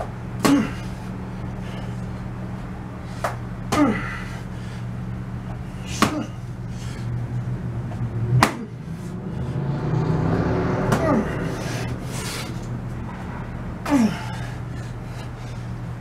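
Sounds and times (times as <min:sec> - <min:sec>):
steady low hum: 0:00.0 - 0:16.0
boxing glove smacking pad: 0:05.9 - 0:06.3, 0:08.4 - 0:08.8.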